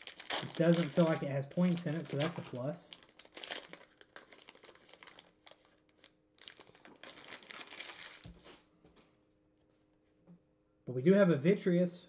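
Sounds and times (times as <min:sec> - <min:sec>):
foil wrapper crinkling: 0:00.0 - 0:08.6.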